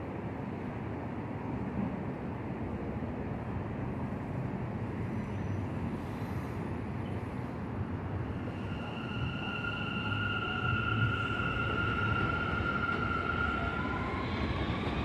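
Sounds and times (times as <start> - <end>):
train rumbling on track: 0.0 - 15.0
high train squeal: 4.8 - 15.0.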